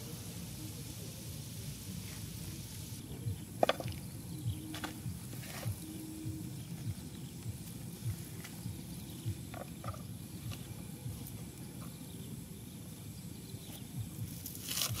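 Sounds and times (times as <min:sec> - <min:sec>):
frogs croaking: 0:03.0 - 0:11.1.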